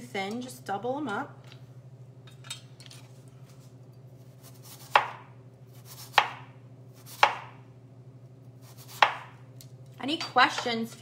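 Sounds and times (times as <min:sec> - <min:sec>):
knife slicing potato: 0:04.2 - 0:07.6, 0:08.6 - 0:09.4.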